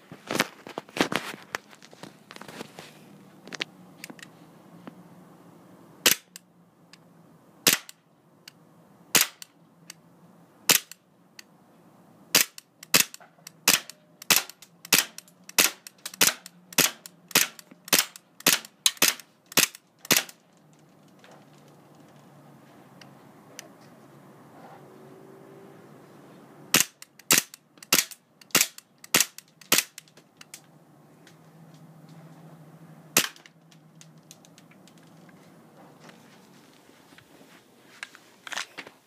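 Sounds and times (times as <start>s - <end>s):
airsoft pistol shots: 7.6s - 7.9s, 9.2s - 9.4s.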